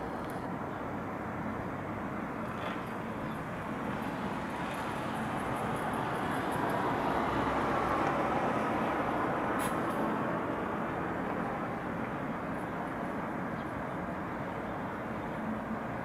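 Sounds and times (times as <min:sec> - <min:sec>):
city traffic noise: 0:00.0 - 0:16.0.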